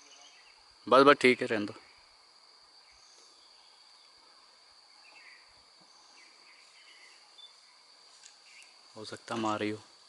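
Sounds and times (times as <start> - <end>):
faint insect chirps: 0.0 - 10.0
insect drone: 0.0 - 10.0.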